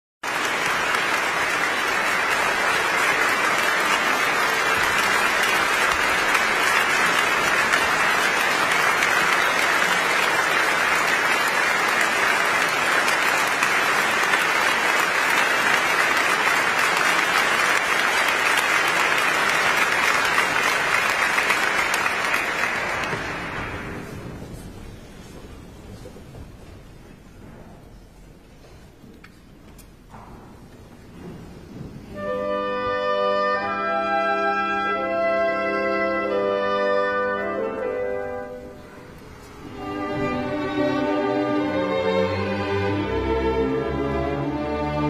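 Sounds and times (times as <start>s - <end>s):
audience applauding: 0.2s - 26.1s.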